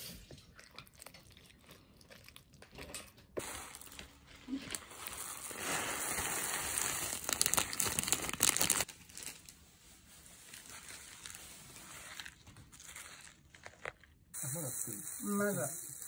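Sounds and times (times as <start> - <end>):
plastic packet crinkling: 3.4 - 14.3.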